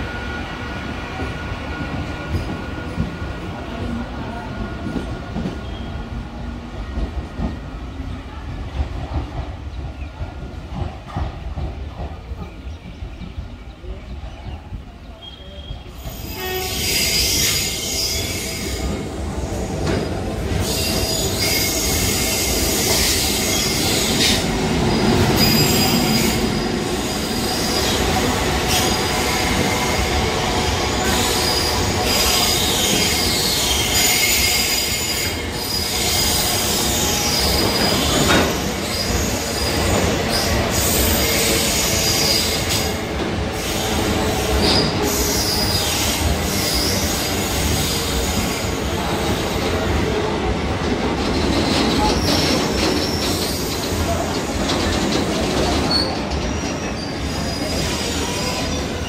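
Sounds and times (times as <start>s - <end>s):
rumble of train coaches: 0.0s - 59.0s
train wheels squealing: 4.9s - 6.1s, 15.1s - 24.5s, 25.3s - 43.0s, 43.6s - 49.8s, 51.1s - 59.0s.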